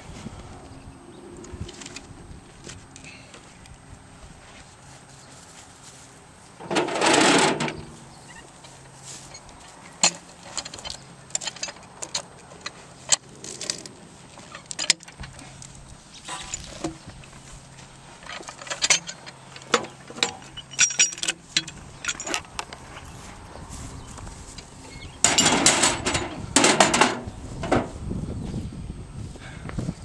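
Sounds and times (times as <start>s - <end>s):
chain and hooks clinking: 18.2s - 22.7s.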